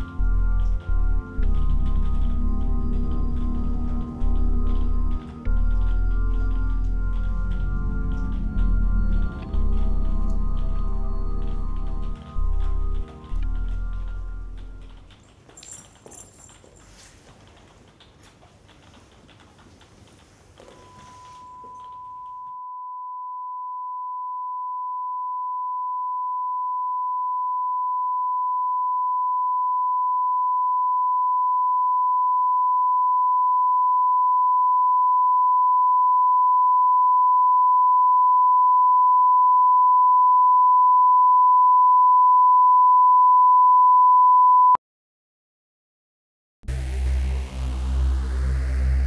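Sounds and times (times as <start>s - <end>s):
high electronic tone: 0.0s - 15.1s, 46.7s - 49.0s.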